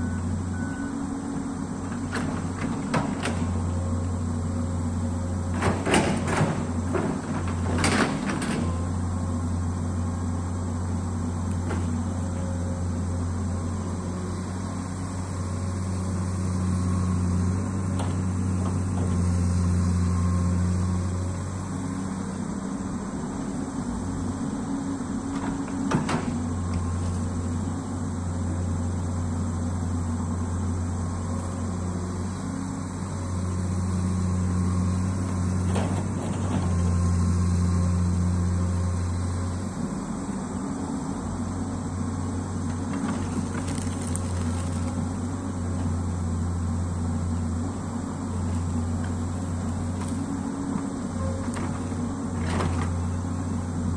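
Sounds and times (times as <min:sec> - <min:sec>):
excavator diesel engine under load: 0:00.0 - 0:53.9.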